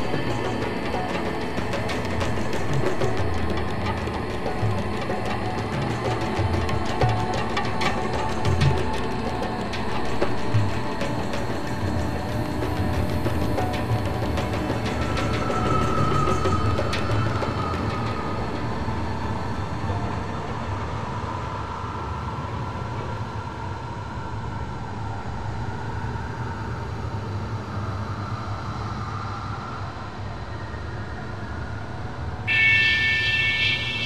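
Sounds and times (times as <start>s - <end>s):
bright high tones: 32.5s - 34.0s.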